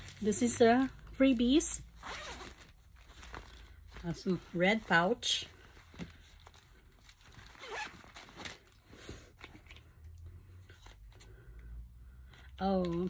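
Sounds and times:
fabric and paper rustling: 0.0 - 9.9, 12.6 - 13.0.

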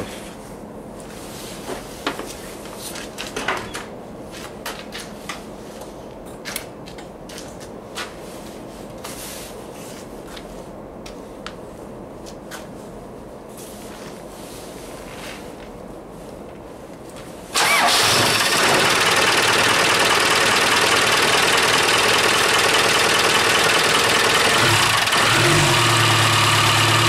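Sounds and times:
low background hum: 0.0 - 24.8.

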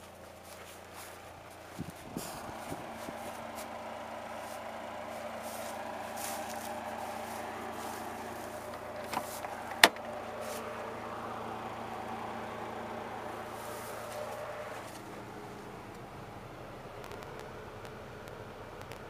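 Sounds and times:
car engine idling: 0.0 - 19.0
car door latch click: 9.0 - 10.1.

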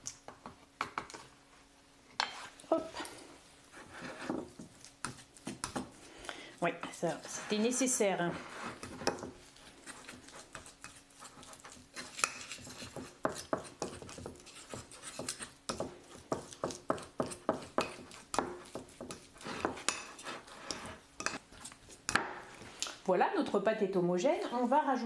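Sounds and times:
fork scraping on ceramic plate: 7.1 - 15.6, 16.4 - 22.0.

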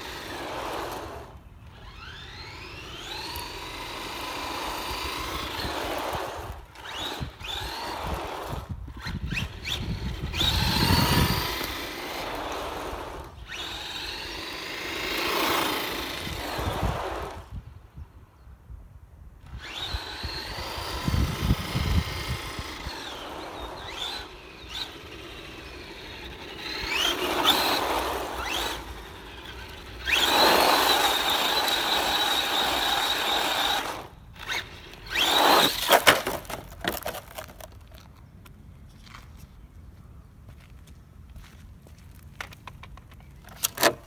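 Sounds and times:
electric motor whining: 0.0 - 17.6, 19.5 - 36.6
toy car knocking on ground: 35.2 - 38.1.

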